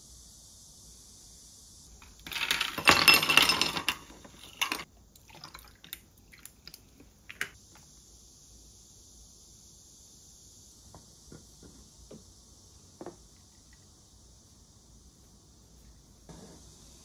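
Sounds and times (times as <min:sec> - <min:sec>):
ice clinking in glass: 0:02.2 - 0:05.9
water pouring over ice cubes: 0:02.2 - 0:07.5.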